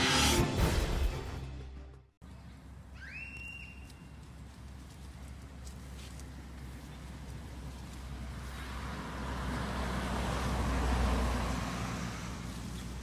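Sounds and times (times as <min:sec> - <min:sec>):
vehicle passing by: 0:06.5 - 0:13.0.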